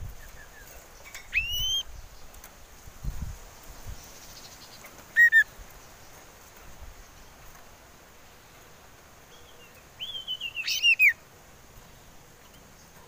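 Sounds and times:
bird whistling: 1.3 - 1.8, 5.2 - 5.5, 10.0 - 11.2.

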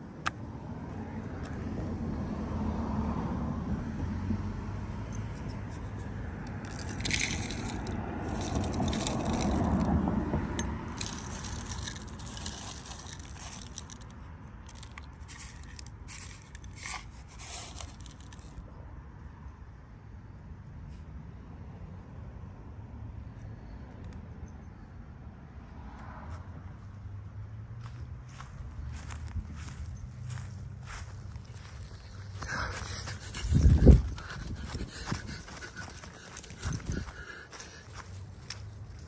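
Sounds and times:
phone scraping along wooden boards: 14.8 - 18.6.

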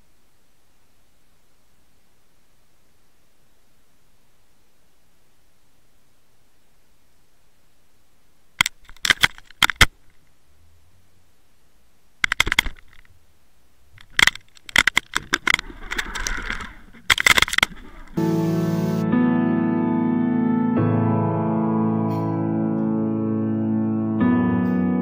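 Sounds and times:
underwater clicking and rattling: 8.6 - 10.1, 12.2 - 13.1, 14.0 - 18.2.

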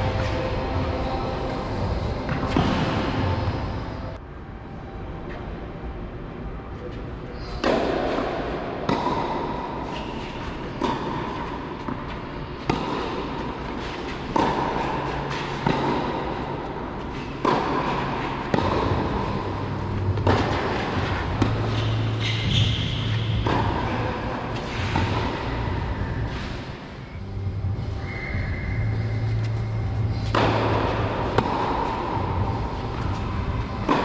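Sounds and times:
tennis ball hit by racquets: 2.2 - 3.6, 7.5 - 26.9, 29.4 - 34.0.

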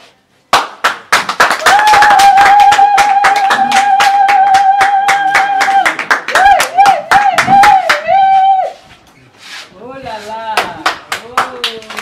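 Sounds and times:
group clapping fast: 0.5 - 8.2, 10.5 - 12.0
long high held cry: 1.5 - 8.9.

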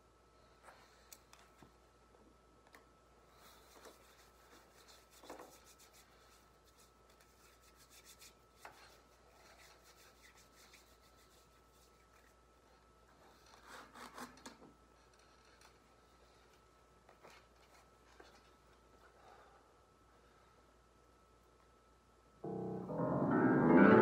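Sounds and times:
hands rubbing together: 3.4 - 12.4.

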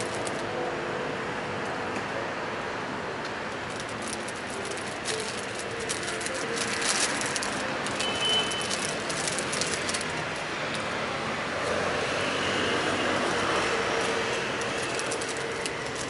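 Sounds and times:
plastic wrapper crackling: 0.0 - 0.5, 3.6 - 11.0, 13.1 - 16.0
city street traffic: 0.0 - 16.0.

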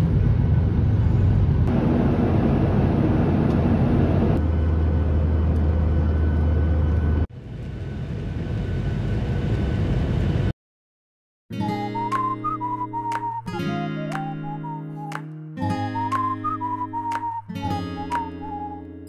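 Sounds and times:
jet cabin engine drone: 0.0 - 10.5.

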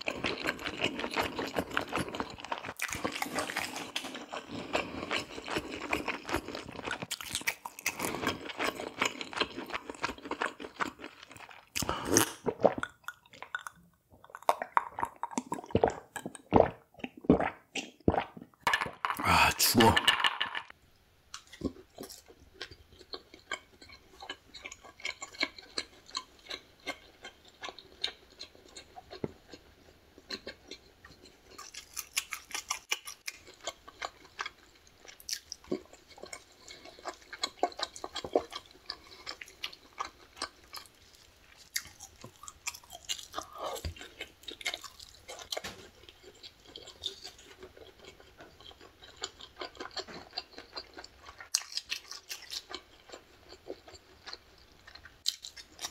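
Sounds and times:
person chewing food: 0.0 - 20.0, 21.3 - 55.9.

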